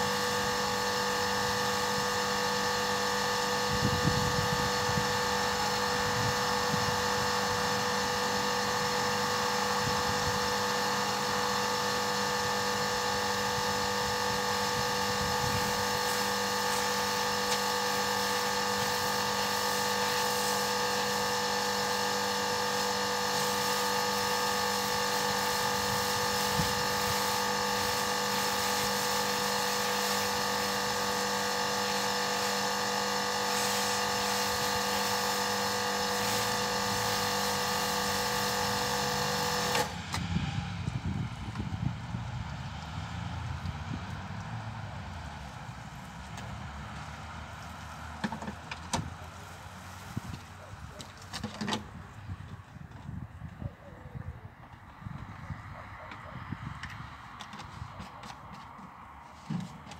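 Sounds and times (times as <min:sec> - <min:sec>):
high-pressure spray hissing: 0:00.0 - 0:39.9
pressure washer motor hum: 0:00.0 - 0:53.5, 0:54.4 - 0:59.9.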